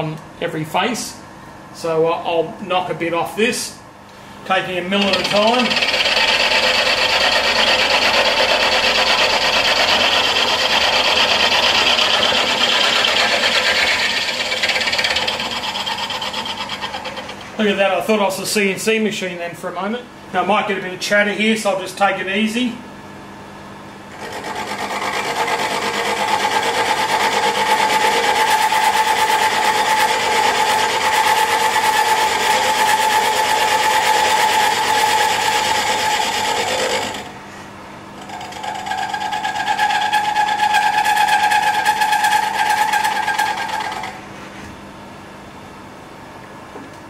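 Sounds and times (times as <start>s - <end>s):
milling cutter cutting metal: 4.9s - 17.6s, 24.1s - 37.3s, 38.2s - 44.2s
machine running idle: 5.0s - 17.6s.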